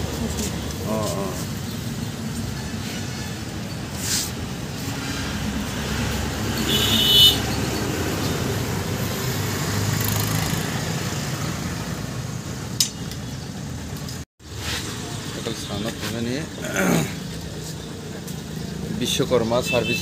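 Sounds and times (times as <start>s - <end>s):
road traffic rumble: 0.0s - 20.0s
sharp click: 12.8s - 13.2s.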